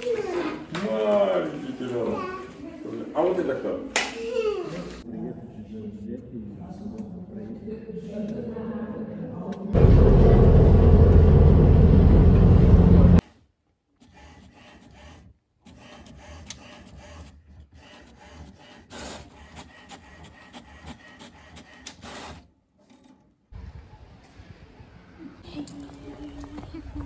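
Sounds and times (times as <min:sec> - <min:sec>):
loud rough rubbing noise: 0:14.0 - 0:23.1
inkjet printer printing: 0:14.2 - 0:22.4.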